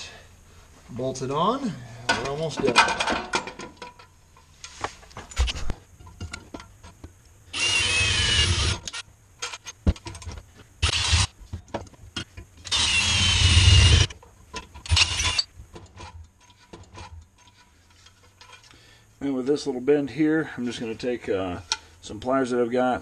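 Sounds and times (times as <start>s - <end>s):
cordless drill whining through metal: 7.5s - 9.0s, 10.8s - 11.3s, 12.6s - 14.1s, 14.8s - 15.5s.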